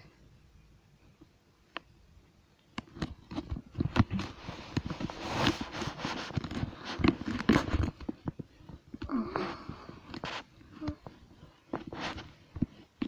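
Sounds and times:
phone rubbing against fur: 0:04.0 - 0:08.0.

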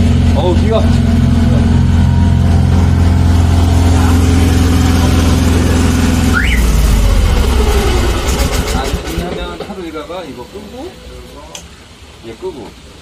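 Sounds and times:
engine running with pulsing beat: 0:00.0 - 0:09.8
short rising squeak: 0:06.2 - 0:08.6.

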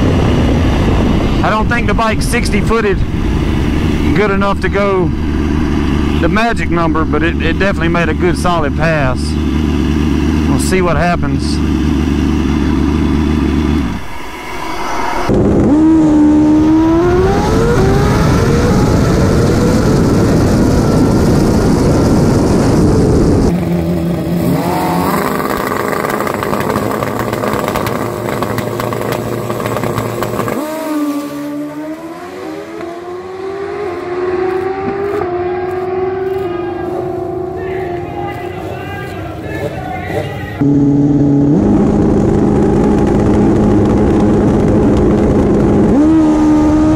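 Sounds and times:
motorcycle engine revving: 0:00.0 - 0:14.2, 0:15.3 - 0:46.9.

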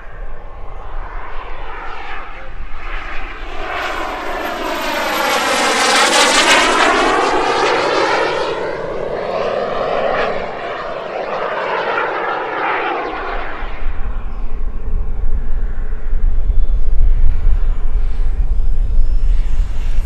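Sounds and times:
model jet turbine passing: 0:00.0 - 0:20.0
wind rumbling on microphone: 0:13.1 - 0:20.0.

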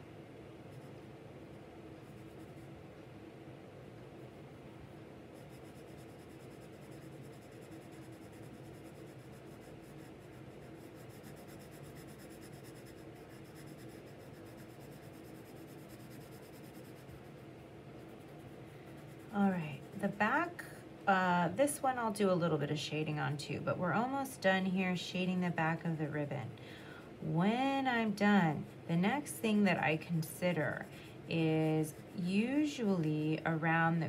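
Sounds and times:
pencil scratching on paper: 0:05.4 - 0:20.6, 0:27.7 - 0:33.2.

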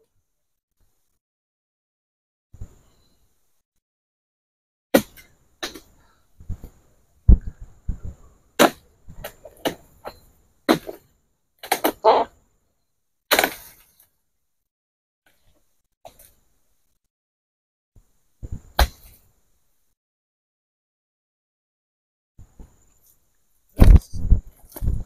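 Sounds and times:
sickle cutting with sharp cracks: 0:13.3 - 0:14.0.

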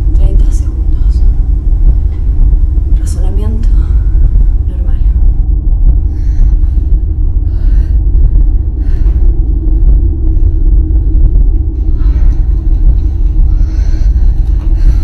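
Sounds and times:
faint held hum: 0:00.0 - 0:15.0
loud low rumble: 0:00.0 - 0:15.0.

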